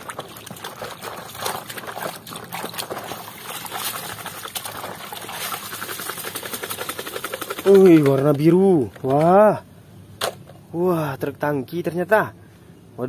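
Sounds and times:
muddy water splashing in metal basin: 0.0 - 8.5.

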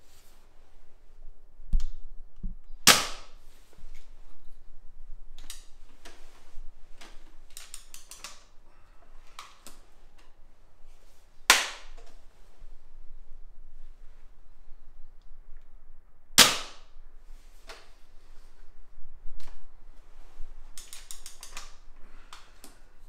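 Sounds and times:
air rifle shot: 2.8 - 3.4, 16.4 - 16.9
rifle mechanism clicks and clatter: 7.5 - 8.5, 20.7 - 21.8.

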